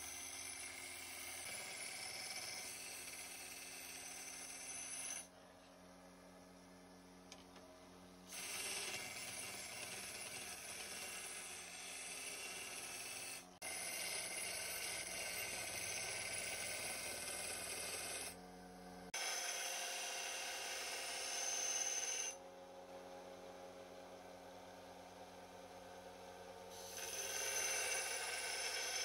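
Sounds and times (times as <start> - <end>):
belt sander grinding steel: 0.0 - 5.3, 8.3 - 18.4, 19.1 - 22.4, 26.7 - 29.0.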